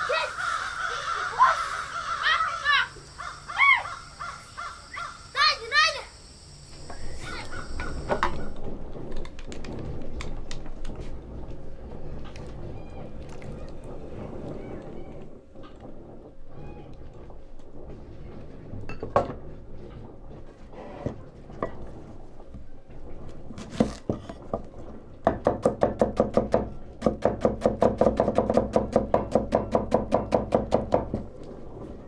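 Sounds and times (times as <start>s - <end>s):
kitchenware knocks and clatter: 18.8s - 19.5s.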